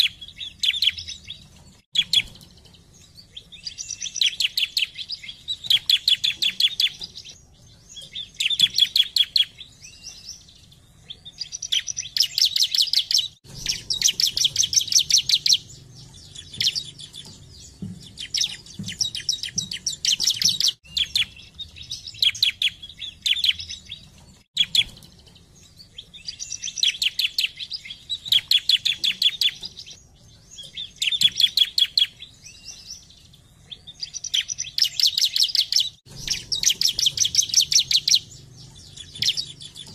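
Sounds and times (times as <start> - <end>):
bird rapid high chirps: 0.0 - 39.9.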